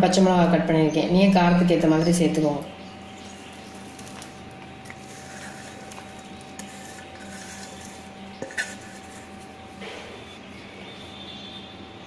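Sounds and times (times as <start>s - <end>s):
food scraped off steel plate: 6.6s - 9.4s.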